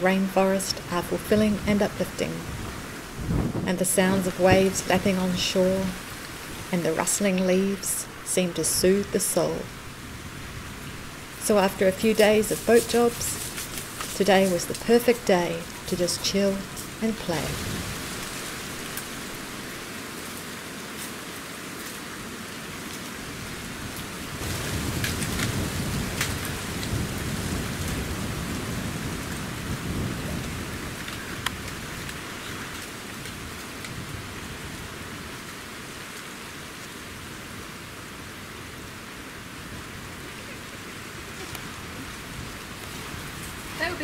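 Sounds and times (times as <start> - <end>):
steady rushing noise: 0.0 - 34.9.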